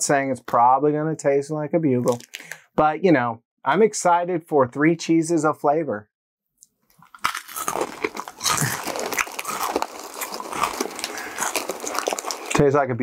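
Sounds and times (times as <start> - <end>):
crunchy chip being chewed: 6.9 - 12.7.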